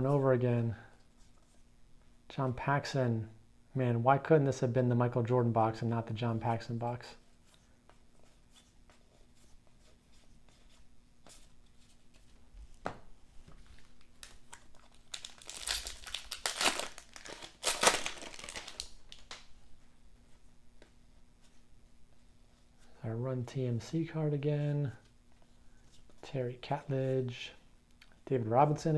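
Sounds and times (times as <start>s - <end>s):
wrapper tearing and crinkling: 13.8s - 19.4s.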